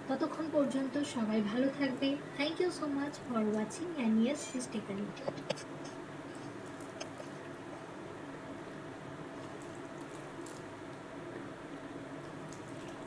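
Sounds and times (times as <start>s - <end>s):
low background hum: 0.0s - 13.0s
syrup trickling and dripping: 9.3s - 11.0s, 12.2s - 13.0s.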